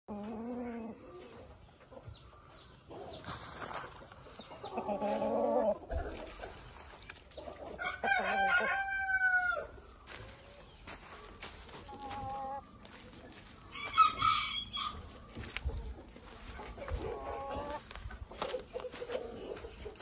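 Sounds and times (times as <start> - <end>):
chickens calling: 0.1 - 20.0
rooster crowing: 7.8 - 9.7, 13.7 - 15.1.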